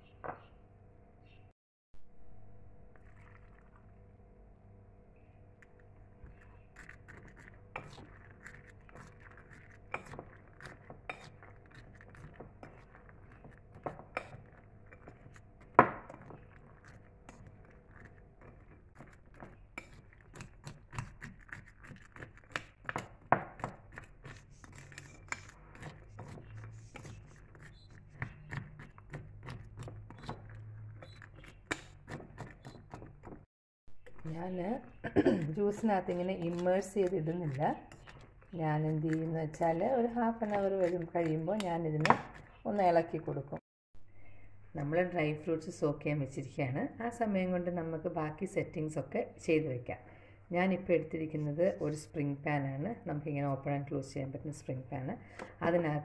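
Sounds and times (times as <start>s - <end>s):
spoon clinking and scraping bowl: 5.7s - 33.4s, 34.5s - 42.6s.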